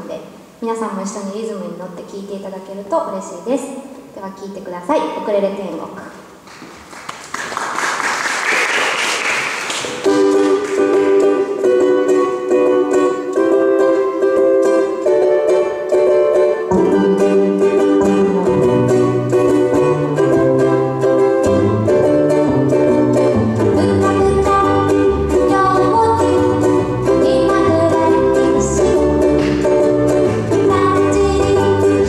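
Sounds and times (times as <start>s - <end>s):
audience applause: 6.5s - 10.9s
strummed ukuleles: 6.6s - 32.0s
ukulele bass line: 8.8s - 32.0s.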